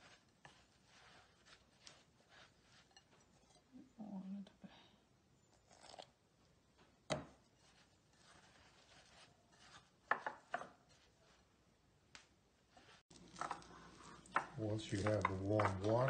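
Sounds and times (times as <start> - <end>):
chopsticks stirring wet batter: 0.0 - 3.8, 7.4 - 11.5, 12.8 - 16.0
chopsticks tapping ceramic bowl: 14.2 - 16.0.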